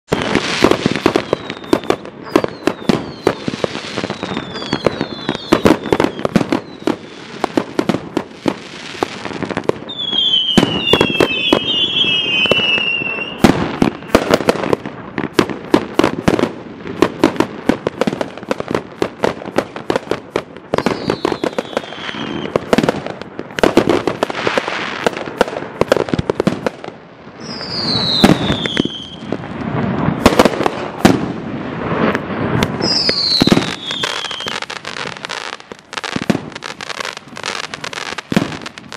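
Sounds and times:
firework whistles: 0.1s - 14.8s, 20.7s - 22.9s, 27.4s - 31.3s, 31.9s - 38.9s.

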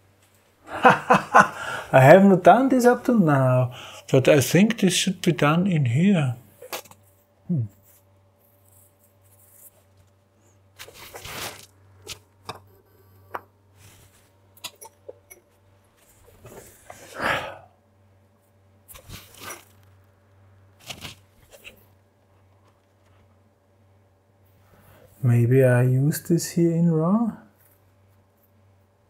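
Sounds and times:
faint steady hum: 0.0s - 29.0s
man breathing and sighing: 1.5s - 2.0s, 16.9s - 17.7s.

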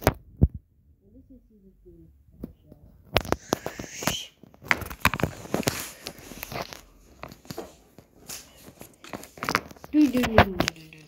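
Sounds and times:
handling rustles and knocks: 4.5s - 11.0s.

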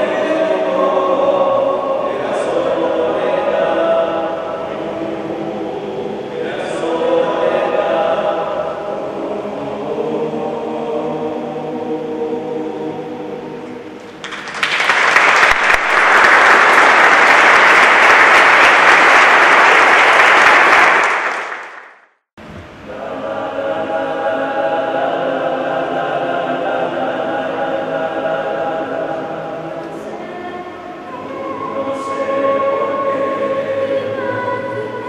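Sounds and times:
men's choir singing: 0.0s - 14.1s, 22.8s - 35.0s
audience applauding: 14.0s - 22.1s.

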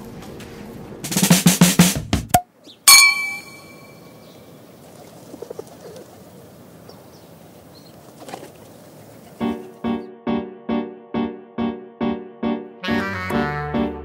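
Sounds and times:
champagne glasses clinking: 2.9s - 4.0s.

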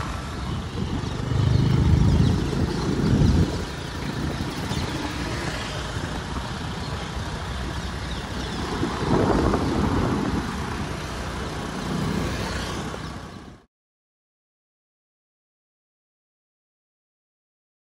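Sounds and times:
engine and tyre rumble: 0.0s - 13.7s.

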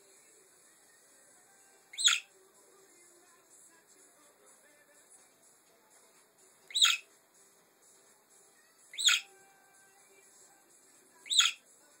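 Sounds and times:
budgerigar chirping: 1.9s - 2.3s, 6.7s - 7.1s, 8.9s - 9.3s, 11.2s - 11.6s.

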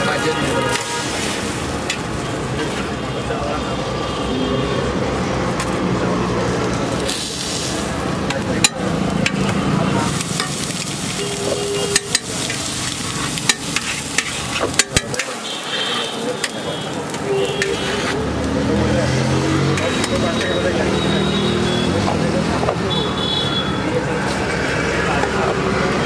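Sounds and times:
food sizzling on a griddle: 0.0s - 3.4s, 5.6s - 22.3s
metal spatula scraping iron plate: 11.5s - 15.4s.

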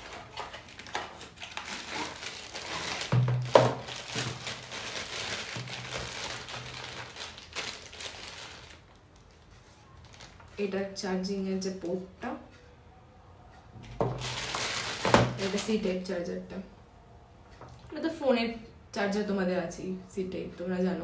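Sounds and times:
plastic bag crinkling: 0.0s - 10.6s, 14.0s - 15.9s.

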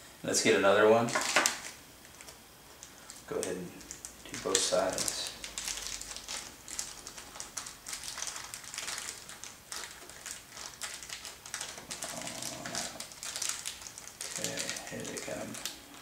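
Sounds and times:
plastic bag rustling: 1.1s - 16.0s.

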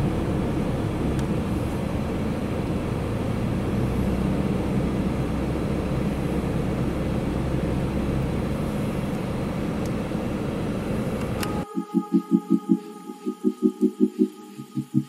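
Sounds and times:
car engine hum: 0.0s - 11.7s.

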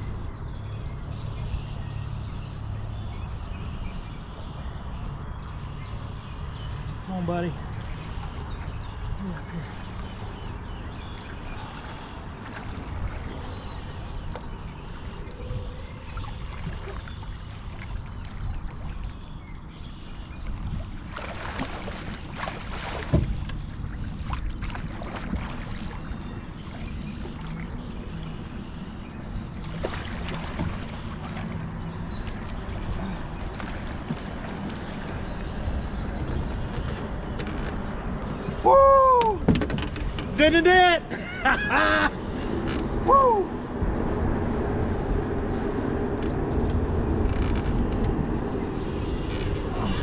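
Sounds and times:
steady low rumble: 42.4s - 50.0s.

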